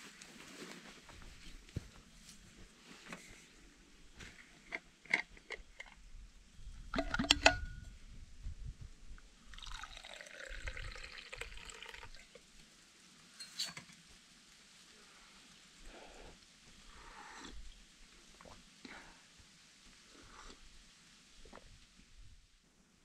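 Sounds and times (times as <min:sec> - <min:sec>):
drink pouring into metal cup: 0:06.9 - 0:07.8, 0:09.5 - 0:12.4
vacuum flask clicks: 0:06.9 - 0:07.8.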